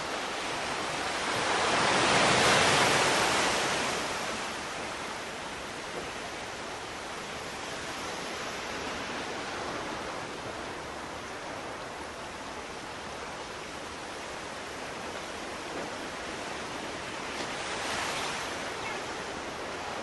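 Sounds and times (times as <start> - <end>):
sea waves washing: 0.0 - 20.0.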